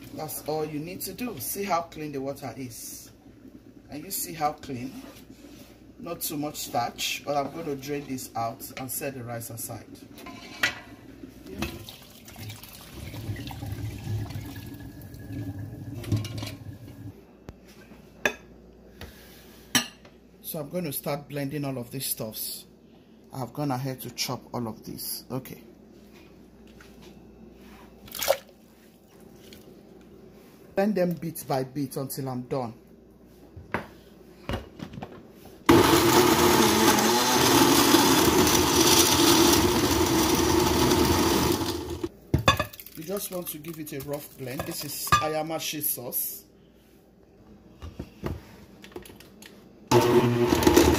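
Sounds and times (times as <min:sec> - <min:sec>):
water splashing through a colander: 0:11.7 - 0:16.3
blender running: 0:35.7 - 0:42.1, 0:49.9 - 0:50.9.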